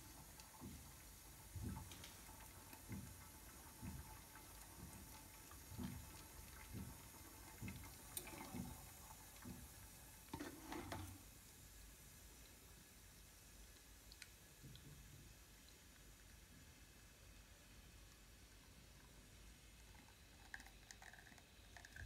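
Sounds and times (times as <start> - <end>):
espresso trickling into cup: 20.0 - 22.0.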